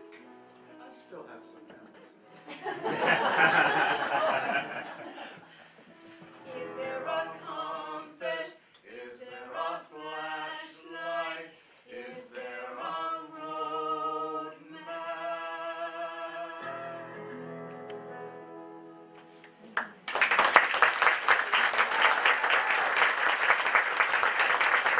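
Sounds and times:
woman and man singing duet: 6.4 - 16.8
audience applause: 19.8 - 24.9.

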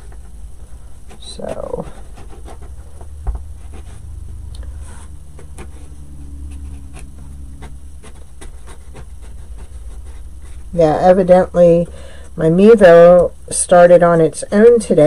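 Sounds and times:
steady low hum: 0.0 - 15.0
marker tip scratching and tapping: 5.4 - 10.6.

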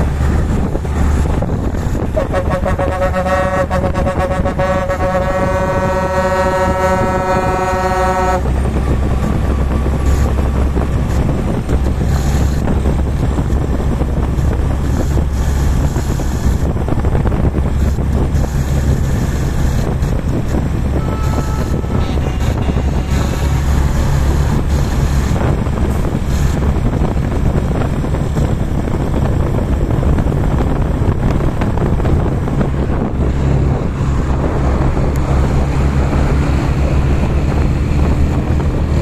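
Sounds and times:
engine and road rumble: 0.0 - 39.0
truck air horn blast: 1.7 - 8.5, 17.8 - 25.4.

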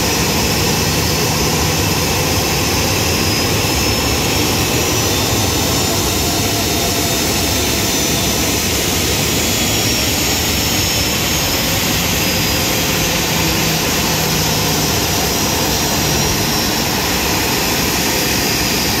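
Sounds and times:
jet engines idling: 0.0 - 19.0.

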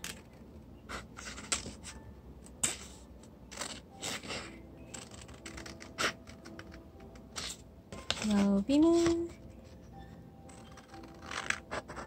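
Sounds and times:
scissors cutting paper: 3.5 - 6.8, 10.5 - 12.0.

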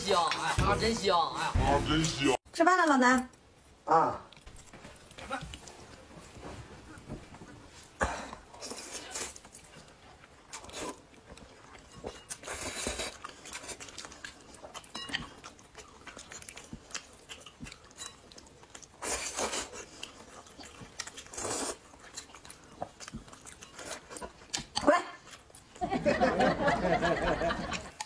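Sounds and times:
quiet chewing: 4.3 - 25.9.

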